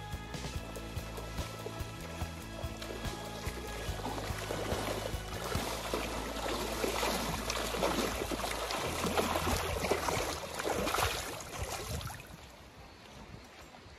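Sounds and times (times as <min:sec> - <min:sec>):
fish splashing in water: 0:01.2 - 0:12.4.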